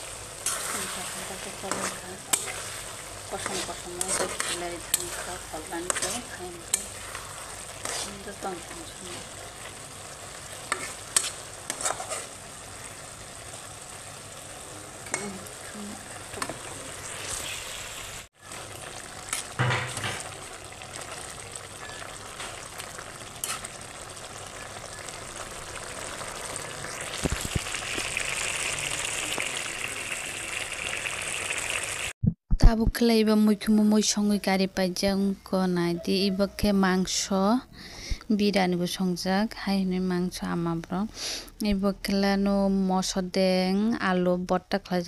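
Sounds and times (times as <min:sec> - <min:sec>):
food sizzling in a wok: 0:00.0 - 0:32.2
metal spatula scraping pan: 0:00.4 - 0:09.4, 0:10.7 - 0:12.4, 0:19.3 - 0:20.3, 0:23.4 - 0:23.8.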